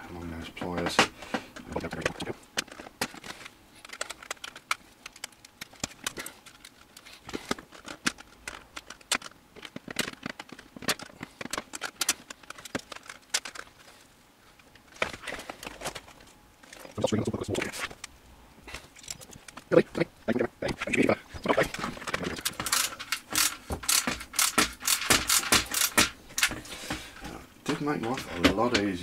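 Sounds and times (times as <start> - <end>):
plastic case rustling and knocking: 1.7 - 13.9.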